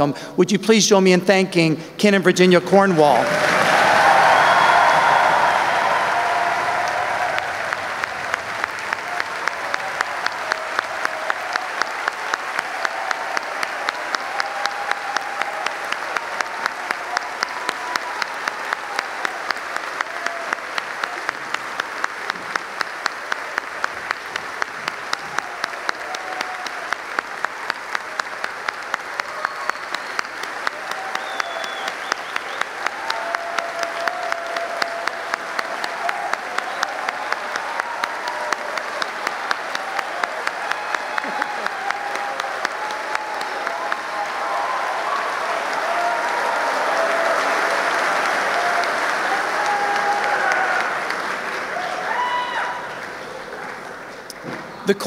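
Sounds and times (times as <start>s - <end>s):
audience applause: 2.6s - 55.0s
sharp rhythmic claps: 3.4s - 51.8s.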